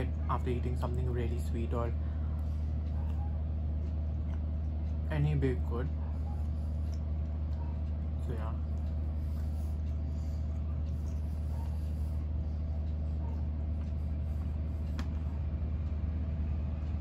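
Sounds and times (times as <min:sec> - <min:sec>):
low hum: 0:00.0 - 0:17.0
mouth chewing cake: 0:03.0 - 0:05.1.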